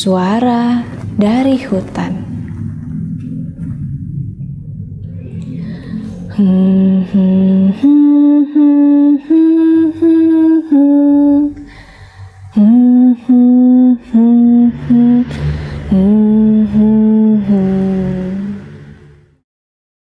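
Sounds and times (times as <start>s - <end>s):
woman humming: 5.4s - 18.9s.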